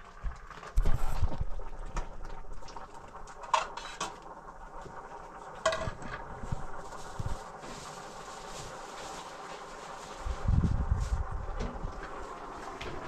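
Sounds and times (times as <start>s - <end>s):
dishes and utensils clattering: 3.4s - 4.2s, 5.6s - 6.2s.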